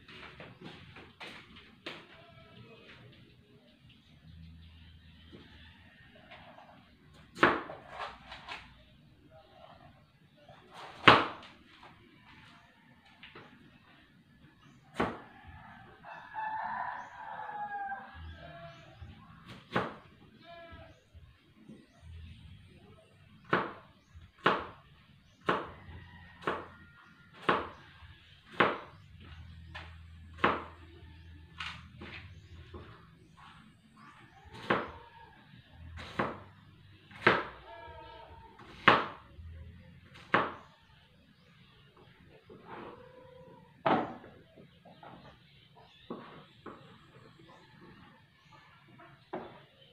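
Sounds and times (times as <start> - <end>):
faint voice: 2.0 - 3.8
rooster crowing: 15.2 - 18.8, 25.8 - 27.4.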